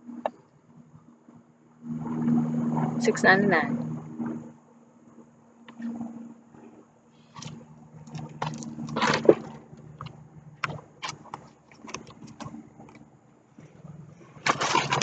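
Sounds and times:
distant motor hum: 0.0 - 15.0
handling clicks and rustles: 5.7 - 15.0.

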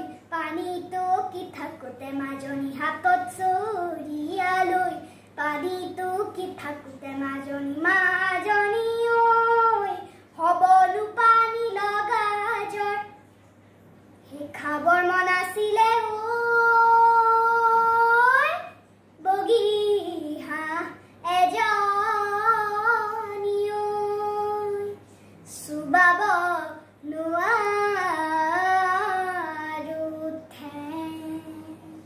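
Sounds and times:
girl singing unaccompanied: 0.0 - 13.2, 14.2 - 32.0.

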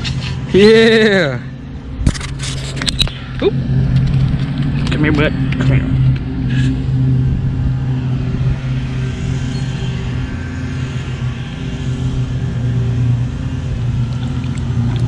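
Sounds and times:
machine humming: 0.8 - 15.0.

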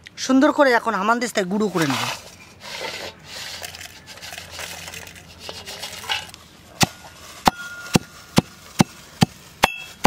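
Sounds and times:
iron pestle clanking: 6.0 - 10.0.

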